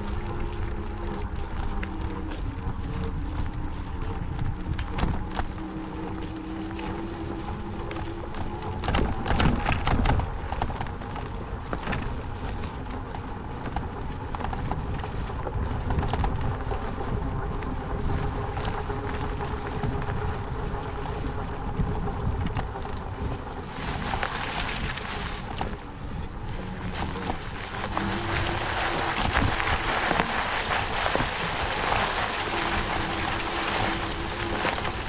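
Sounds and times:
steady hum: 0:00.0 - 0:35.0
wind rumbling on microphone: 0:00.0 - 0:35.0
wheelchair tyres crunching on trail: 0:17.4 - 0:35.0.

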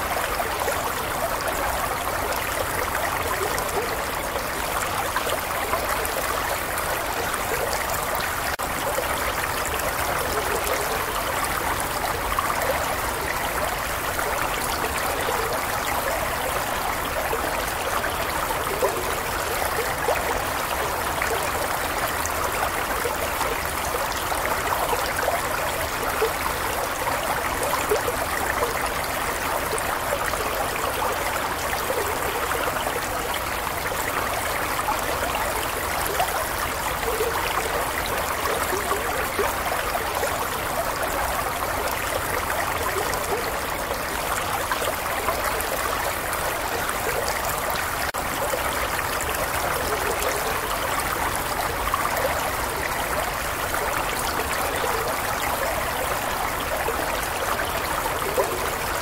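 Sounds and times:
stream flowing over rocks: 0:00.0 - 0:59.0.

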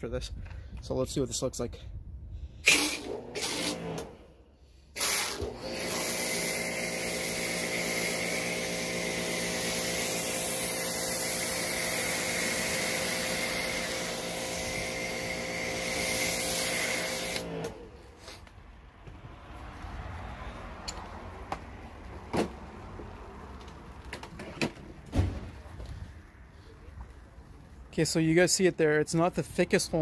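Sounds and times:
pressure washer motor hum: 0:02.6 - 0:04.2, 0:05.0 - 0:18.4.

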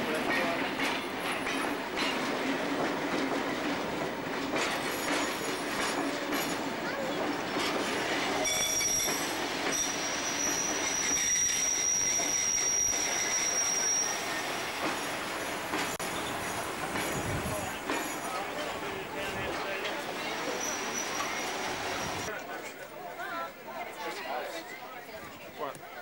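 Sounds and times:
train carriages rolling on steel wheels: 0:00.0 - 0:22.3
high wheel squeal: 0:08.1 - 0:15.0, 0:20.2 - 0:22.3.

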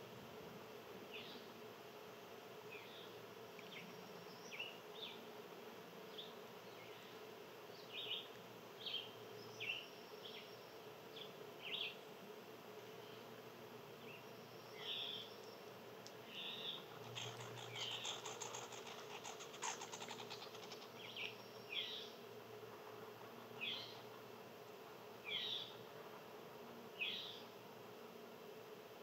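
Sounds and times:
insect buzz: 0:00.0 - 0:29.0.

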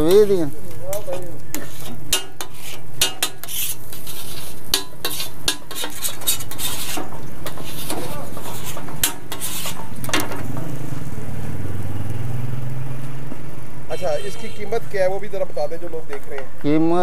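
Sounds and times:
metal spatula scraping on griddle: 0:00.0 - 0:11.1
light frying sizzle: 0:00.0 - 0:17.0.

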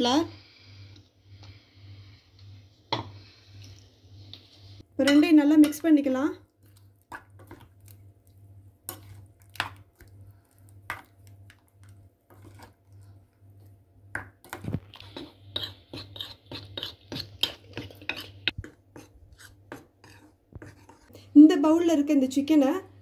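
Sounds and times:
spatula stirring wet marinade: 0:06.4 - 0:13.7, 0:14.4 - 0:21.2.

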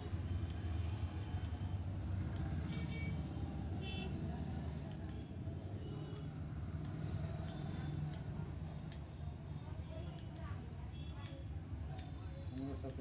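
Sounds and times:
street traffic rumble: 0:00.0 - 0:13.0
scissors snipping: 0:00.4 - 0:02.9, 0:04.8 - 0:05.2, 0:06.1 - 0:09.1, 0:10.1 - 0:10.6, 0:11.2 - 0:13.0.

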